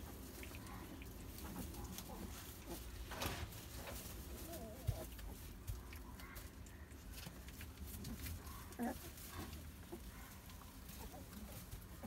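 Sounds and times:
puppies whimpering and squeaking: 0:08.5 - 0:09.3.

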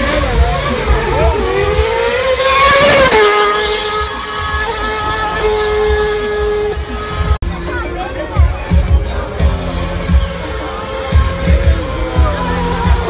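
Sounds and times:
racing car passing at high revs: 0:00.0 - 0:07.4.

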